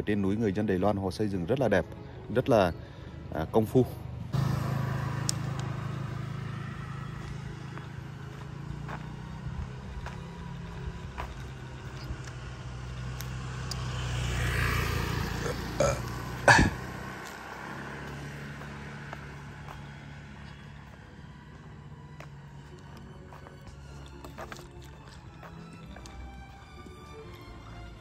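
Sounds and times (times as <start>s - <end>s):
motor scooter engine passing: 4.1s - 22.5s.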